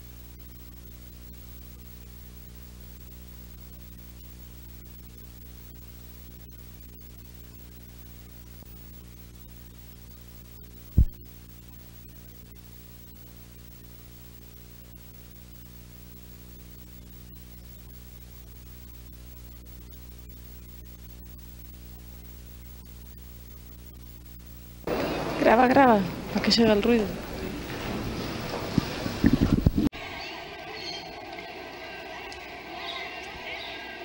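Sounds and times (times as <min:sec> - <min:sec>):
low electrical hum: 0:00.0 - 0:33.9
heavy low thump: 0:11.0 - 0:11.2.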